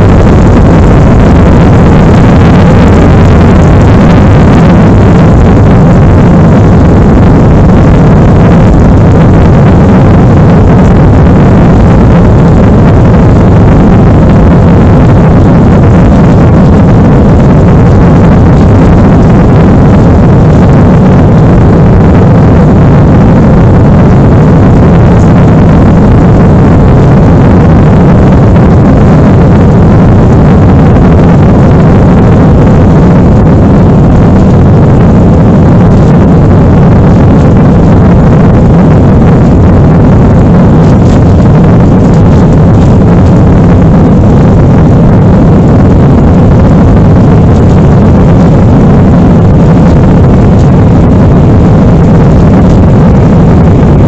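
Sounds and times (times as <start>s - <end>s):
jet engine roar in cabin: 0.0s - 54.0s.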